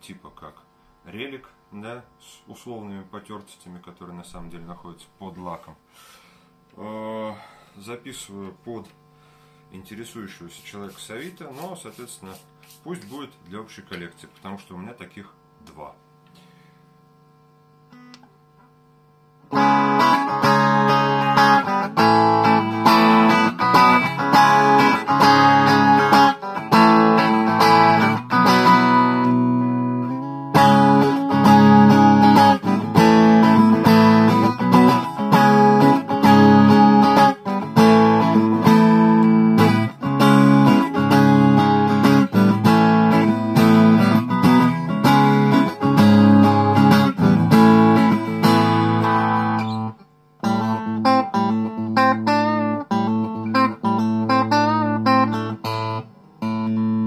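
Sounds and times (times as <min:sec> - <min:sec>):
electric guitar playing chords: 0:17.8 - 0:57.0.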